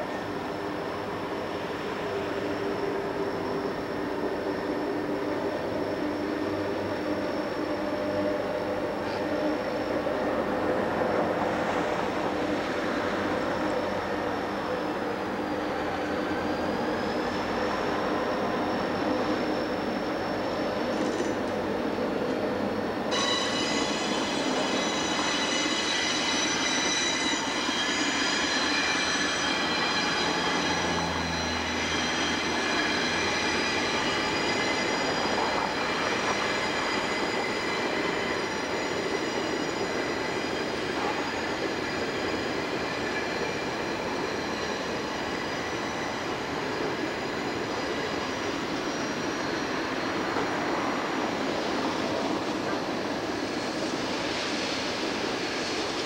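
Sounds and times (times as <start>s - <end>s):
train rumbling over bridge: 0.0s - 56.0s
high-pitched wheel squeal: 23.1s - 52.8s.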